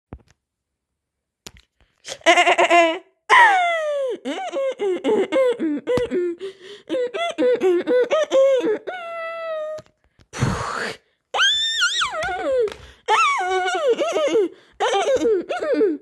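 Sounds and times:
young child laughing: 2.0 - 9.8, 11.8 - 16.0.

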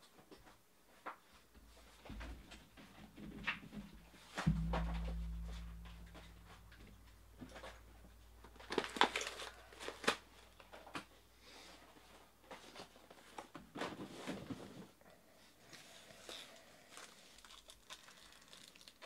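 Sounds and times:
card packaging crinkling: 8.6 - 10.7, 16.8 - 19.0.

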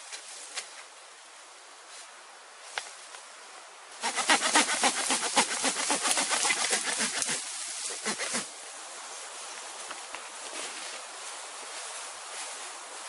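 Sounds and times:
machete cutting cane: 4.0 - 8.5.

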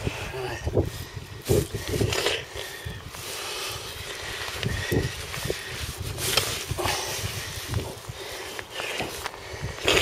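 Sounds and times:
wind buffeting microphone: 0.0 - 10.0
rustling of landing net: 4.5 - 10.0.

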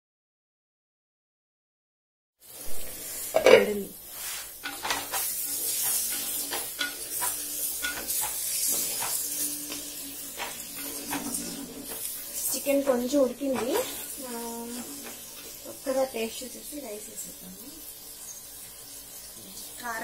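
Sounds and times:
curry sizzling in clay pot: 2.4 - 20.0
spatula scraping pot: 2.8 - 16.0.

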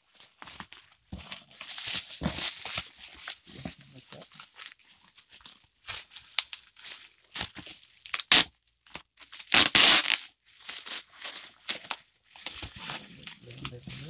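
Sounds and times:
bubble wrap crinkling: 0.0 - 14.0
bubble wrap ripping: 4.1 - 14.0.

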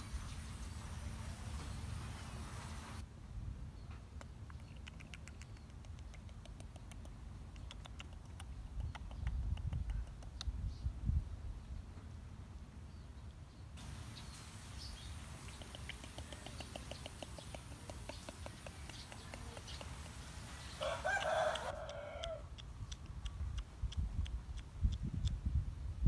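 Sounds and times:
faint hiss: 0.0 - 3.0, 13.8 - 21.8
quick ticks: 4.2 - 10.5, 15.4 - 25.4
rooster crowing: 20.7 - 22.5.

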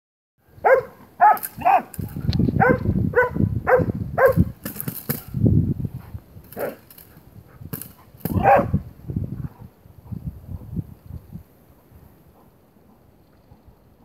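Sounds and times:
dog barking sharply: 0.6 - 1.9, 2.6 - 4.4, 8.3 - 8.8.

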